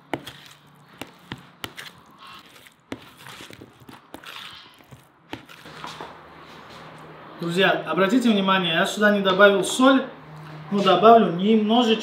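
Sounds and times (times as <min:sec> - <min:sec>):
wet stirring of salad: 0:00.0 - 0:06.0.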